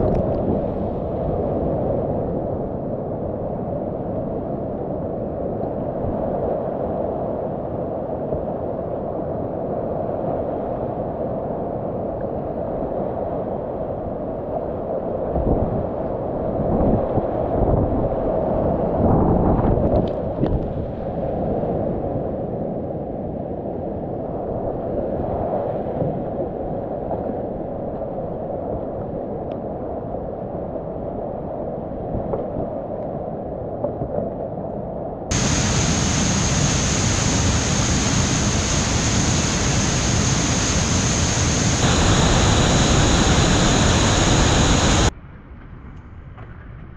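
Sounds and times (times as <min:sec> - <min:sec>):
muffled rapids rushing: 0:35.3 - 0:45.1
steady high tone: 0:35.3 - 0:45.1
waterfall roaring: 0:35.3 - 0:45.1.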